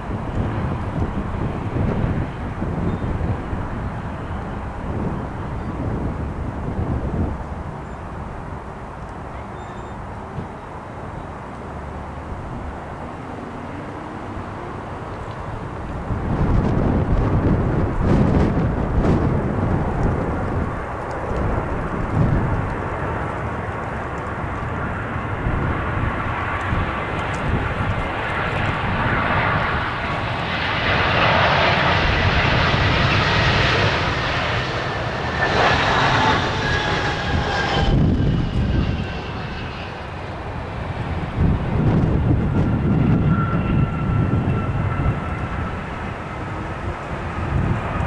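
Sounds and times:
wind rumbling on microphone: 0.0 - 48.0
jet engines whining: 12.1 - 48.0.

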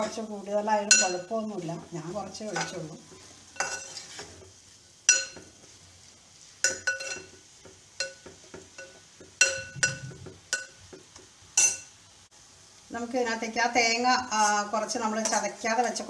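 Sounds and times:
metal spoon clinking on pot: 3.6 - 4.0, 5.1 - 5.4, 6.6 - 7.4, 8.0 - 10.8, 11.6 - 11.9
spoon scraping thick mixture: 3.7 - 4.4.

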